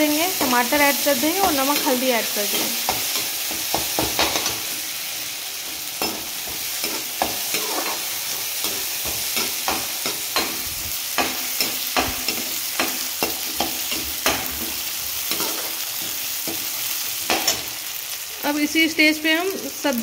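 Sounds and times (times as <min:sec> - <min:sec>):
onions sizzling in oil: 0:00.0 - 0:20.0
metal spoon scraping pan: 0:06.0 - 0:17.6.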